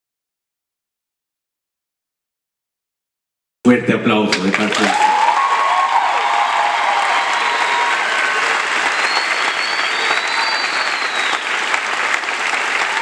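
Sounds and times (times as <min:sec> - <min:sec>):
audience applauding: 0:04.4 - 0:13.0
people cheering: 0:04.4 - 0:13.0.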